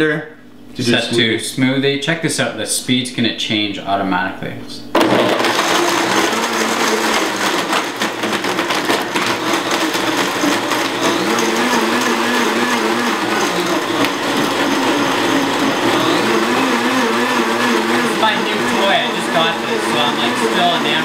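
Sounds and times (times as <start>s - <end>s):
blender crushing ice: 4.9s - 21.0s.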